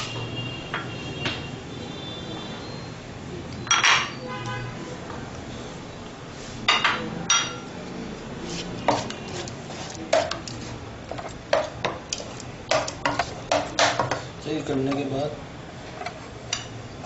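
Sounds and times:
spoon knocking on cooking pot: 0:12.7 - 0:14.2.

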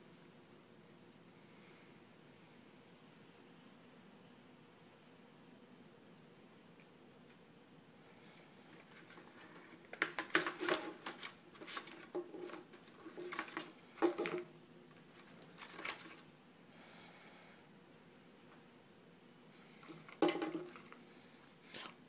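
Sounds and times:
handling clicks and rustles: 0:08.7 - 0:16.3.

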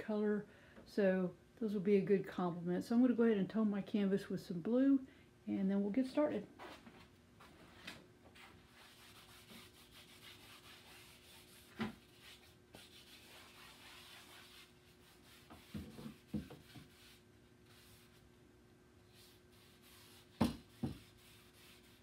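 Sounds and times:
paper towel rubbing on canvas: 0:08.4 - 0:18.3, 0:19.1 - 0:22.0
canvas knocking on wooden easel: 0:20.3 - 0:21.1.

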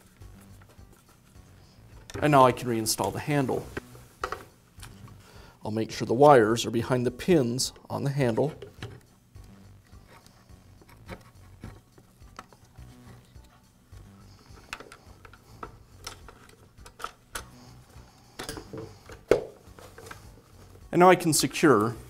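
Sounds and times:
hard plastic parts clicking: 0:14.5 - 0:17.6.

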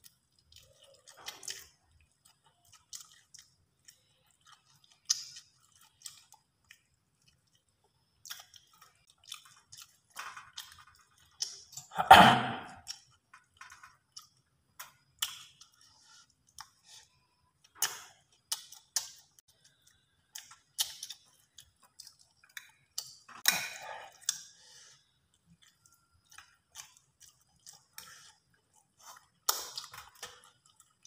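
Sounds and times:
mouth clicks from chewing: 0:17.7 - 0:24.5.

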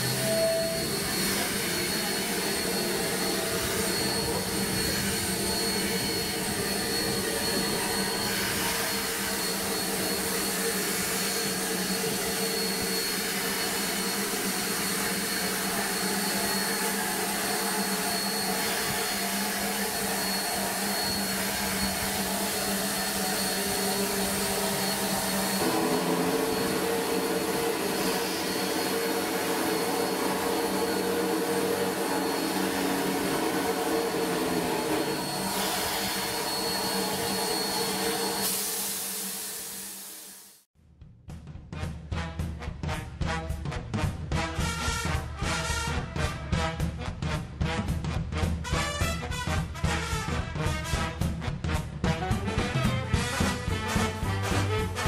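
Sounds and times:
thin high whine: 0:00.0 - 0:40.6
steam hissing: 0:00.0 - 0:40.7.

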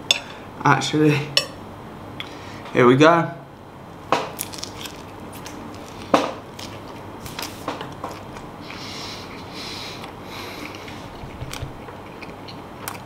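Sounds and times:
person chewing food: 0:04.4 - 0:13.0.

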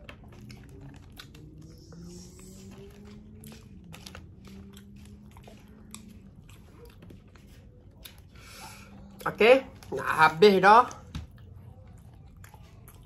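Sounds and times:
person chewing and biting: 0:00.0 - 0:09.2, 0:11.4 - 0:13.0
faint low hum: 0:00.0 - 0:13.0.

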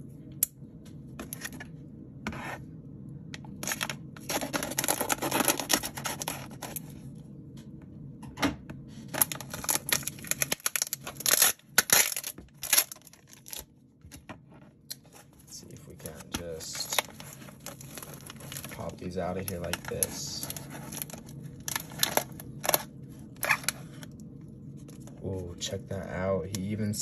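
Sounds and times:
wrapping torn by hand: 0:03.6 - 0:06.8, 0:09.1 - 0:13.6
knife cutting packing tape: 0:03.7 - 0:06.6.

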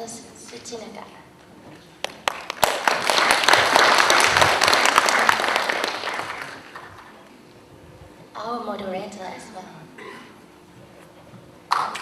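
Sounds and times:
audience applauding: 0:02.0 - 0:07.2, 0:11.7 - 0:12.0.

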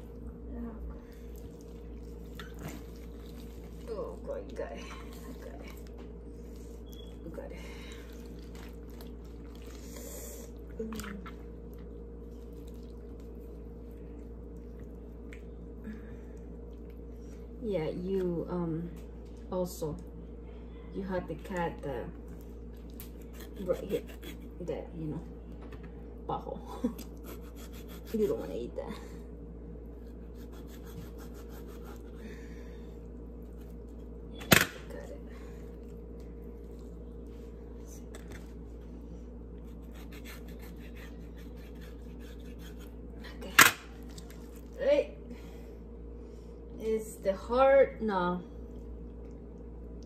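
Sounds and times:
steady low hum: 0:00.0 - 0:50.0
wet squishing: 0:01.0 - 0:15.7
knife scraping raw meat: 0:23.2 - 0:24.6, 0:27.2 - 0:28.4, 0:30.0 - 0:32.2, 0:39.6 - 0:43.0.

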